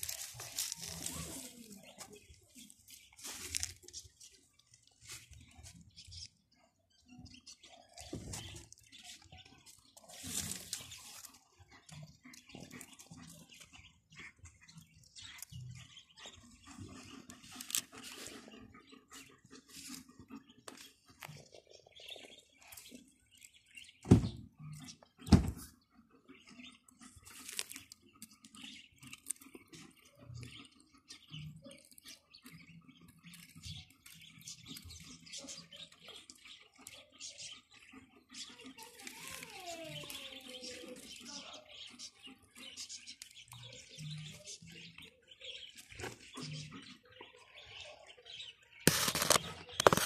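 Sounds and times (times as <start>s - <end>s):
animal rustling in leaf litter: 0.0s - 4.0s, 10.0s - 11.4s, 38.8s - 41.0s
light scratching and rustling: 0.0s - 6.3s, 8.0s - 11.5s, 48.9s - 50.0s.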